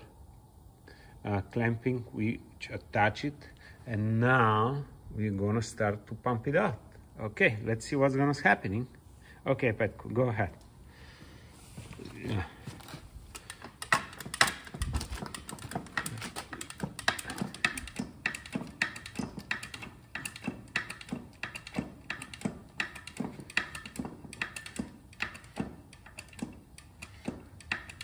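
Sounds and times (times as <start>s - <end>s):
hydraulic hand pump clicking: 12.8s - 28.0s.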